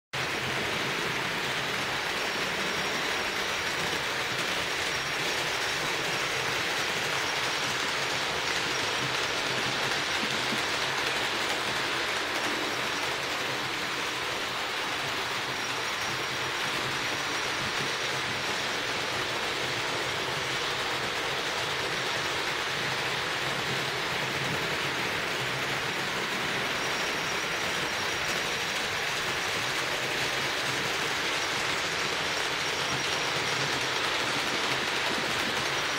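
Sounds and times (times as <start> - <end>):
model train wheels rolling on rails: 0.2 - 35.9.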